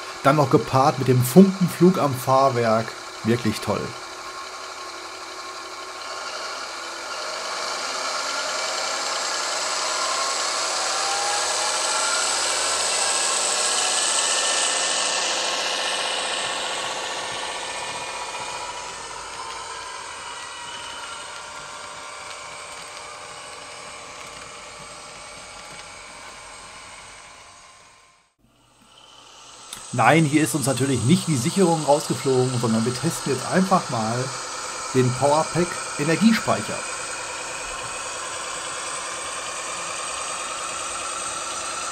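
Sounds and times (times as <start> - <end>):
model diesel engine sound: 0.0 - 41.9
model train wheels rumbling: 0.0 - 41.9.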